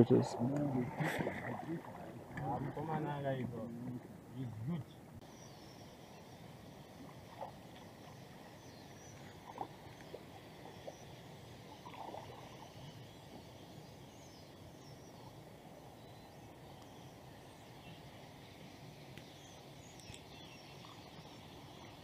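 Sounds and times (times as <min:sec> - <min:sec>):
low water wash: 0:00.0 - 0:05.2
distant bird calls: 0:00.0 - 0:22.0
soft paddle splashes: 0:00.6 - 0:03.0.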